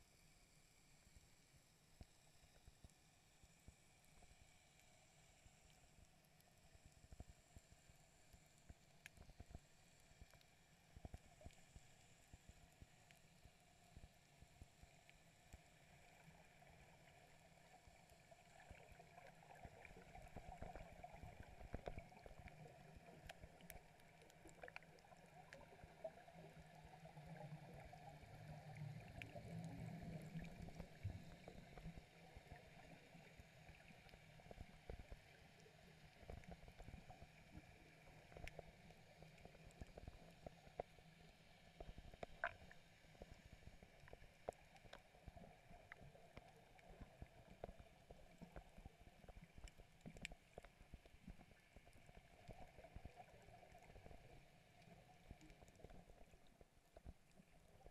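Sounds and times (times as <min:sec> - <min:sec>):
underwater regulator bubbles gurgling: 0:17.9 - 0:40.9.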